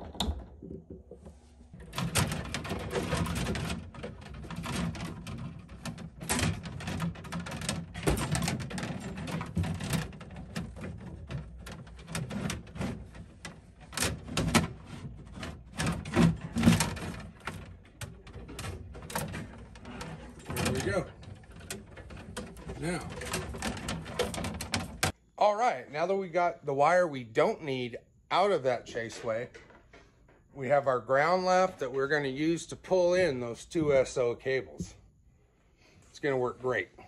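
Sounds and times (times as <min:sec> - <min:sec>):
sharp clicks and knocks: 0:00.0 - 0:25.2
wires rustling and scraping: 0:00.0 - 0:25.2.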